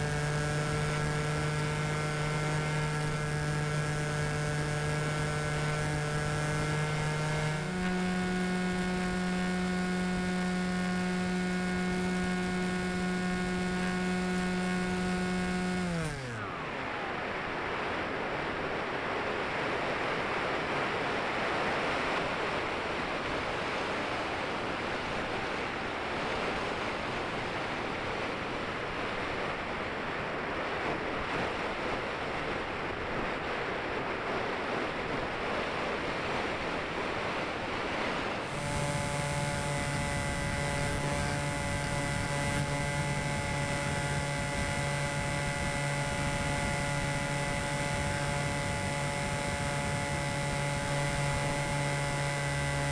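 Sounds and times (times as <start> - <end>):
model plane motor humming: 0.0 - 18.1, 38.0 - 52.9.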